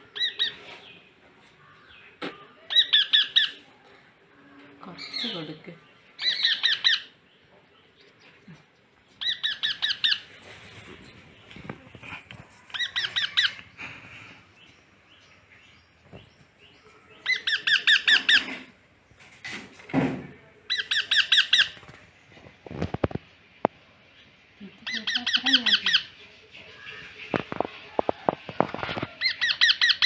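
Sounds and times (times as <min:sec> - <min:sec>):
parrot chick squawking: 0:02.7 - 0:03.6, 0:06.2 - 0:07.2, 0:09.2 - 0:10.3, 0:12.8 - 0:13.7, 0:17.3 - 0:18.7, 0:24.9 - 0:26.1, 0:29.2 - 0:30.0.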